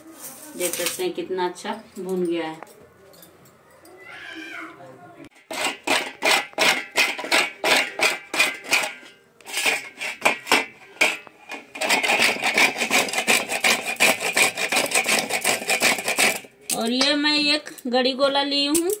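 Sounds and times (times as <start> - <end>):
coconut grating rasping strokes: 5.4 - 16.6.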